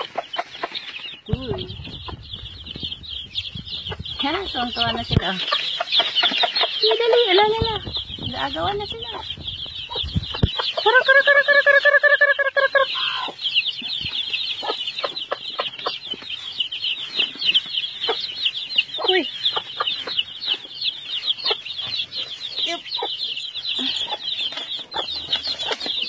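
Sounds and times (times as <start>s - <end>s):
chicks cheeping: 0.0s - 26.0s
hen clucking: 0.0s - 26.0s
hen calling: 1.3s - 16.5s.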